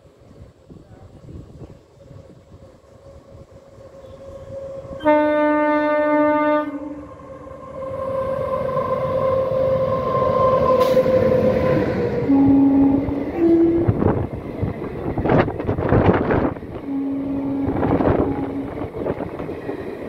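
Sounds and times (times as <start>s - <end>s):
train rumbling on rails: 0.0s - 20.0s
train horn blowing: 3.6s - 14.2s, 16.7s - 19.0s.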